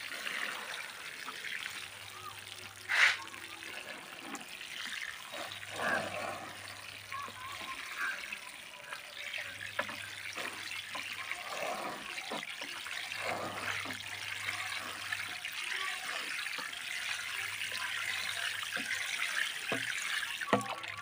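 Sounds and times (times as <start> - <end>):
water spraying onto soil: 0.0 - 20.8
small water splashes: 0.0 - 21.0.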